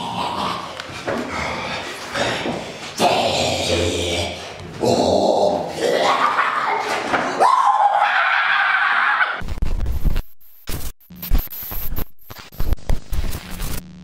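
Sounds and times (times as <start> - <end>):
person screaming: 4.8 - 9.4
crackling video static: 9.4 - 14.0.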